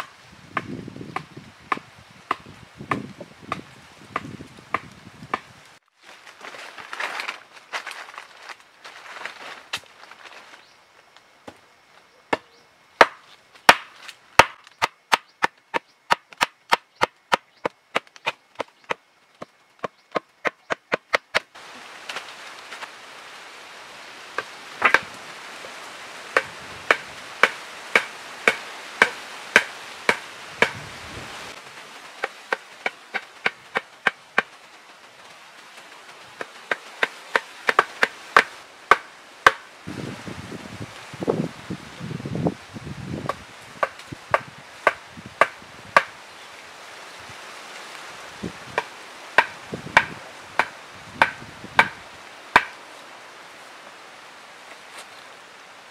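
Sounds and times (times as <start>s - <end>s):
wood chopping strikes: 0.0s - 5.5s, 12.3s - 22.2s, 24.4s - 25.1s, 26.4s - 30.8s, 36.4s - 39.6s, 43.2s - 46.1s, 48.8s - 52.8s.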